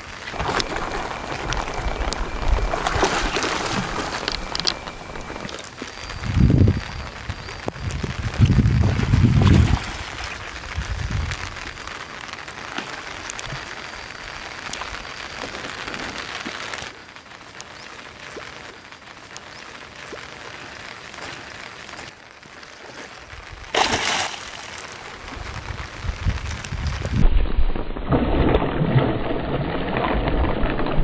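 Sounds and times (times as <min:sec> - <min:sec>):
fish splashing at surface: 0:23.7 - 0:24.9
loud splash: 0:23.7 - 0:24.9.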